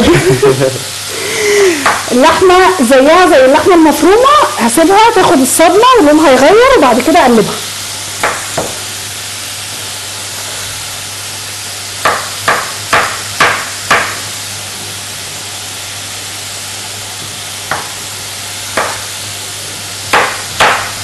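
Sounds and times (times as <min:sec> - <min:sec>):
meat sizzling in a pan: 0:00.0 - 0:21.0
knife knocking on cutting board: 0:08.2 - 0:08.8, 0:17.7 - 0:18.0.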